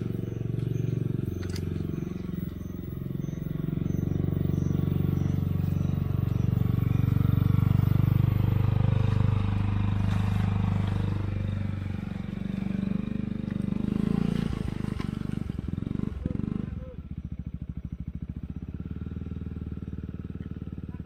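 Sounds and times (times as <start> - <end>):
scooter engine under throttle: 0.0 - 21.0.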